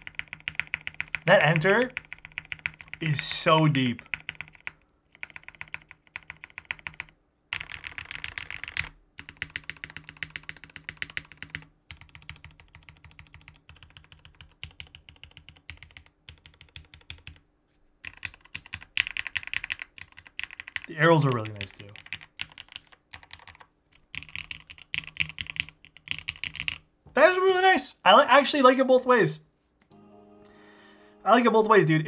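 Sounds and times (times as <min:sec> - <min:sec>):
mechanical keyboard typing: 0:00.0 - 0:03.2, 0:04.0 - 0:17.4, 0:18.0 - 0:26.8.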